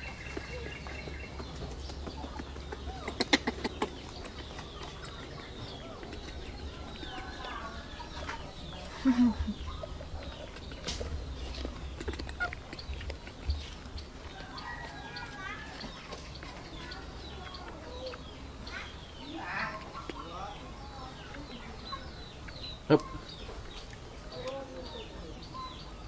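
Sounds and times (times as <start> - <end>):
bird chirps and clucks: 0.0 - 26.0
cluster of clicks: 1.8 - 7.6.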